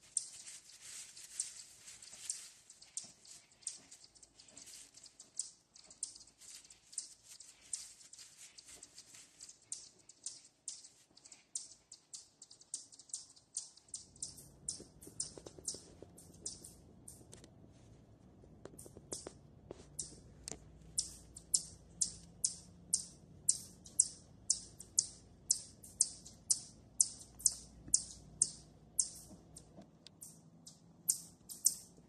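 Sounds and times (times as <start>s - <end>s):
dry leaves crackling and rustling: 0.0s - 5.1s, 6.2s - 9.7s
low steady rumble: 13.8s - 32.0s.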